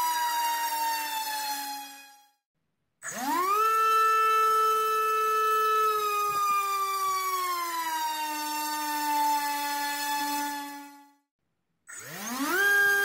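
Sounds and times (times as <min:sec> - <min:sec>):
brushless motor propeller whine: 0:03.1 - 0:10.9, 0:12.0 - 0:13.0.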